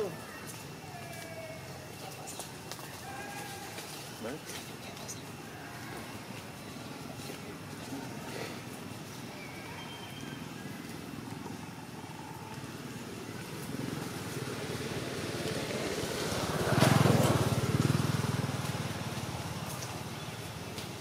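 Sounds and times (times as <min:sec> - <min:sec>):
vehicle engine passing: 0:12.5 - 0:21.0.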